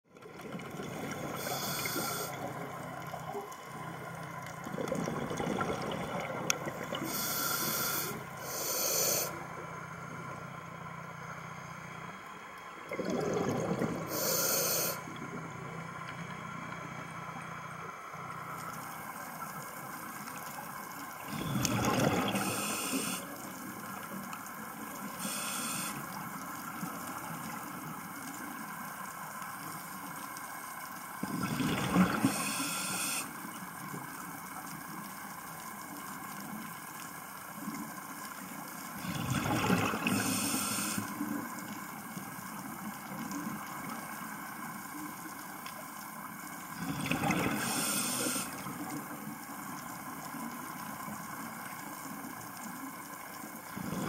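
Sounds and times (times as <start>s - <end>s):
steady watery hiss: 0.6s - 54.0s
regulator hissing inhalations: 1.4s - 2.4s, 7.0s - 9.4s, 14.1s - 15.0s, 22.4s - 23.3s, 25.2s - 26.1s, 32.3s - 33.3s, 40.1s - 41.1s, 47.6s - 48.6s
bubbling exhalations: 12.9s - 14.3s.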